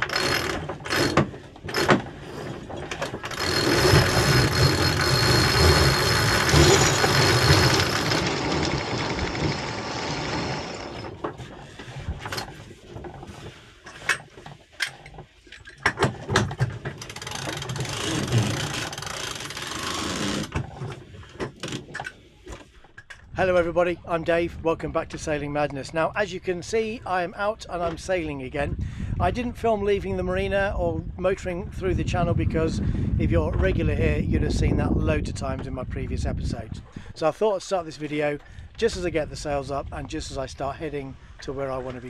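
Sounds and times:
winch grinding: 0:00.0 - 0:12.6, 0:13.9 - 0:22.2.

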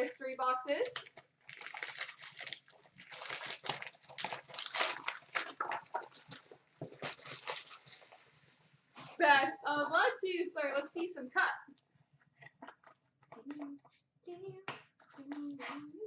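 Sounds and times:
foil bag crinkling: 0:00.7 - 0:08.3.

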